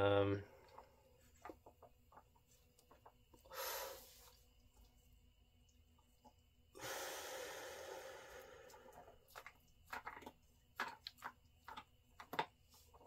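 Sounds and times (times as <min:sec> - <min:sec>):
person breathing out: 0:03.5 - 0:04.3, 0:06.7 - 0:09.2.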